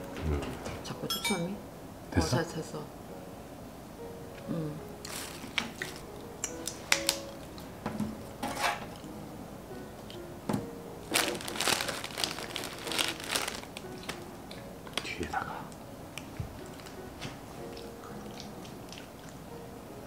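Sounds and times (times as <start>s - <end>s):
faint background music: 0.0s - 20.0s
bread packaging crinkling: 5.0s - 6.0s, 11.0s - 14.2s.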